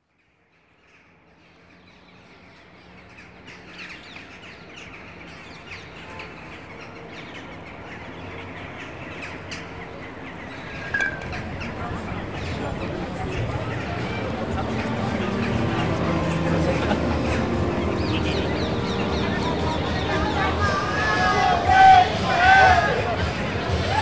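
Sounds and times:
birds chirping and calling: 0:00.8 - 0:23.9.

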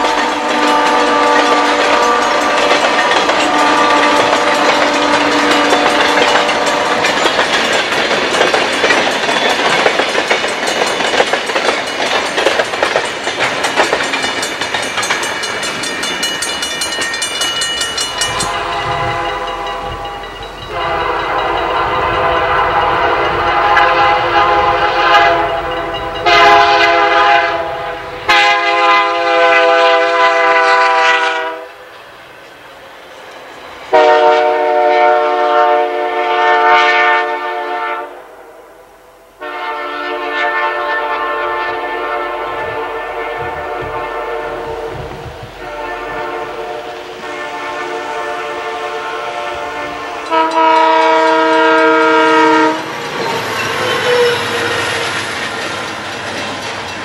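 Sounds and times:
locomotive air horn blasts: 0:00.0 - 0:07.2, 0:18.1 - 0:31.8, 0:33.9 - 0:38.5, 0:39.4 - 0:53.0, 0:53.7 - 0:55.2
train wheels clattering on rails: 0:00.0 - 0:34.8, 0:41.6 - 0:57.0.

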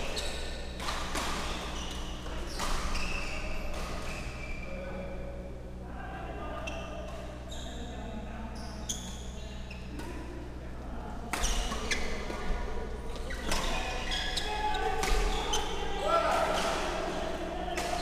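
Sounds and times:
shoes squeaking on court: 0:00.0 - 0:00.8, 0:01.4 - 0:04.7, 0:11.4 - 0:12.3, 0:13.1 - 0:15.8.

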